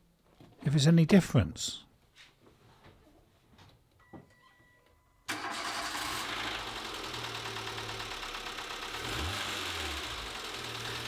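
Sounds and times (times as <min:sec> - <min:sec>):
car engine idling with knocking: 0:06.5 - 0:11.0.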